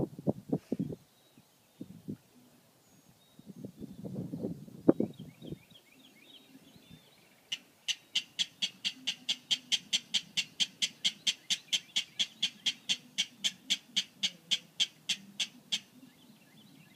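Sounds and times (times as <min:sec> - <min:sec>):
rail bird clicking calls: 0:07.5 - 0:16.0.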